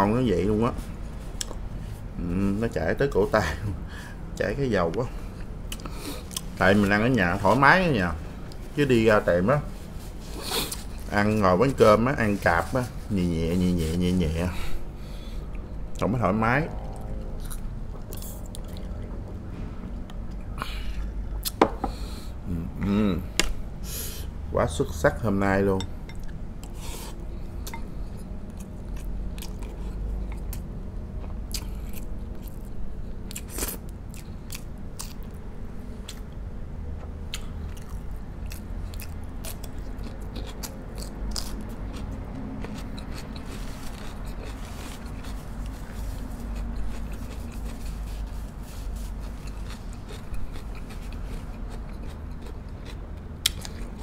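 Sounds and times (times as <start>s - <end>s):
person biting and chewing: 5.7s - 6.5s, 20.1s - 21.6s, 26.2s - 35.4s, 37.3s - 54.0s.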